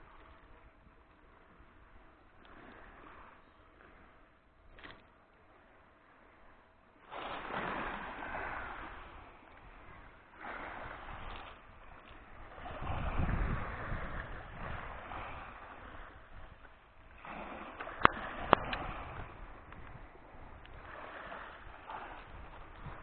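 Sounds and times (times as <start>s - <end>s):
sea waves washing ashore: 0.0s - 23.0s.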